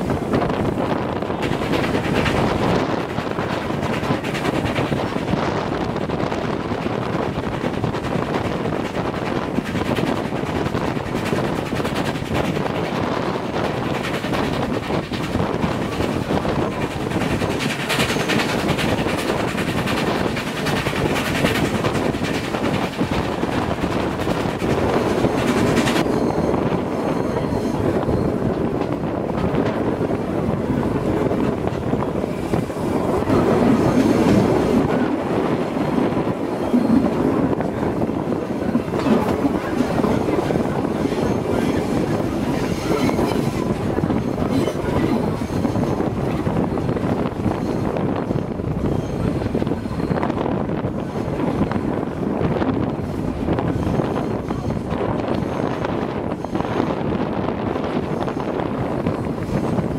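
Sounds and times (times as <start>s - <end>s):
steam train running on rails: 0.0s - 59.9s
wind buffeting microphone: 0.0s - 59.9s.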